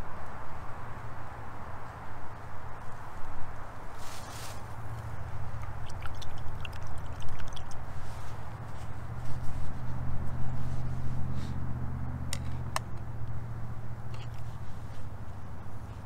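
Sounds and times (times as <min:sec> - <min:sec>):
road traffic hum: 0:00.0 - 0:16.0
vehicle engine: 0:04.0 - 0:16.0.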